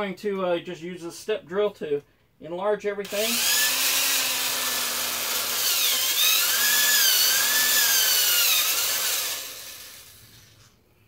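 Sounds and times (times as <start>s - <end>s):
electric drill cutting plastic: 3.1s - 10.7s.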